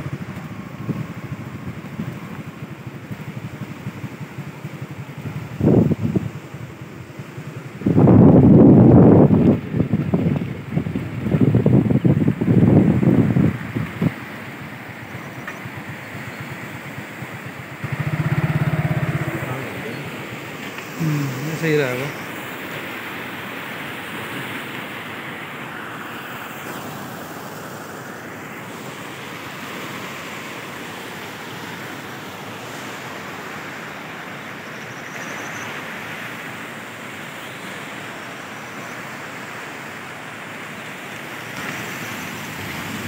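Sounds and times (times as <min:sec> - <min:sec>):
stream rushing over rocks: 0:00.0 - 0:43.0.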